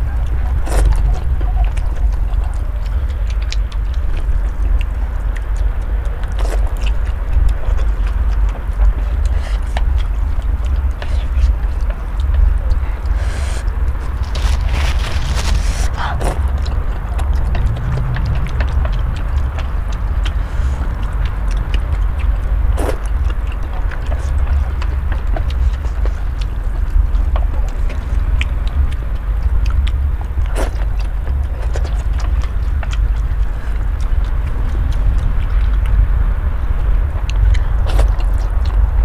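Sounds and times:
steady low rumble: 0:00.0 - 0:39.0
wet mouth clicks: 0:00.0 - 0:39.0
person slurping noodles: 0:13.1 - 0:16.5.

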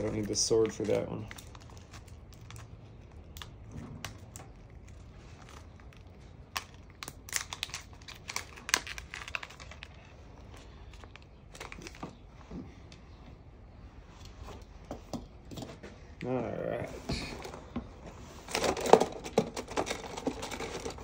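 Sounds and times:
plastic packet crinkling: 0:00.0 - 0:12.2, 0:18.4 - 0:21.0.

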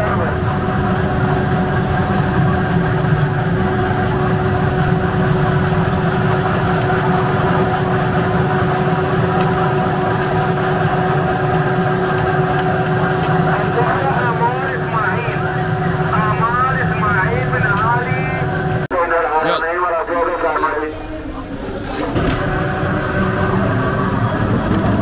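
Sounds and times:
peeling machine motor hum: 0:00.0 - 0:25.0.

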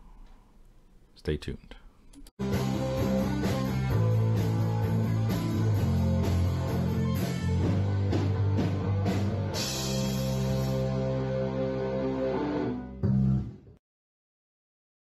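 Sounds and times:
intro music with steady beat: 0:02.4 - 0:13.7.

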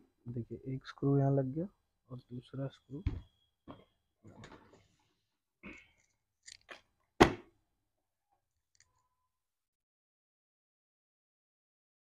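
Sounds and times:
sharp knock: 0:07.2 - 0:07.5.

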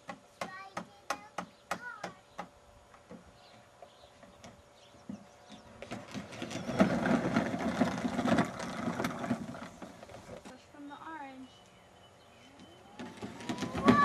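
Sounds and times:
toy car rolling on plastic track: 0:05.8 - 0:10.4, 0:13.0 - 0:14.0.

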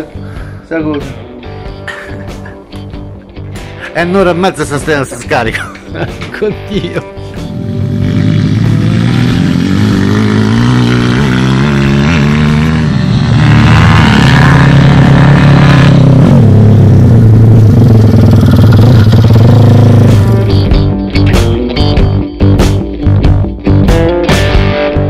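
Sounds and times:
pit bike engine revving: 0:07.4 - 0:20.9.

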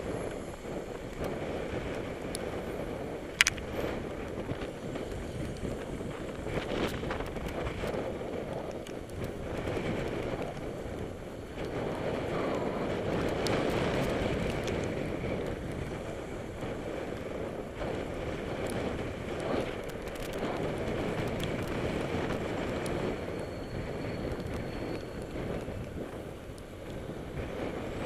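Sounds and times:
bicycle tyre and road noise: 0:00.0 - 0:28.0
wind rushing over microphone: 0:00.0 - 0:28.0
small clicks: 0:03.3 - 0:04.4, 0:19.5 - 0:23.0.

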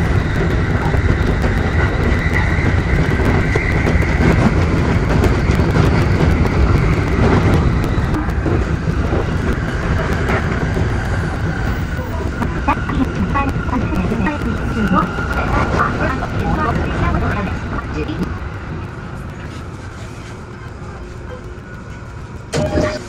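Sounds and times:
rapid wheel clacks: 0:00.0 - 0:19.8
electric train rumbling: 0:00.0 - 0:23.0
thin steady whine: 0:00.0 - 0:23.0.

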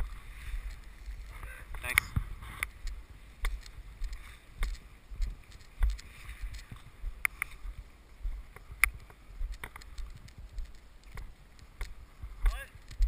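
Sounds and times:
wind buffeting microphone: 0:00.0 - 0:13.0
gear handling clicks and knocks: 0:08.5 - 0:12.0.

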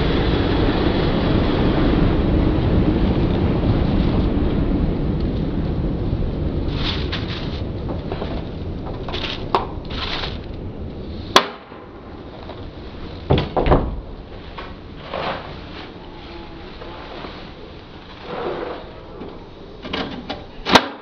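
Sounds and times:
low rumble: 0:00.0 - 0:20.7.

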